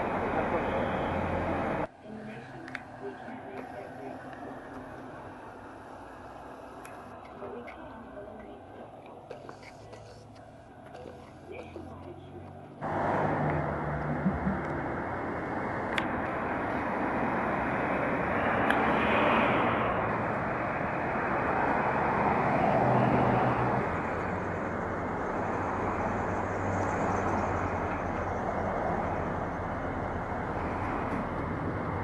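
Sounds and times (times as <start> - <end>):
vehicles passing: 0.0 - 32.0.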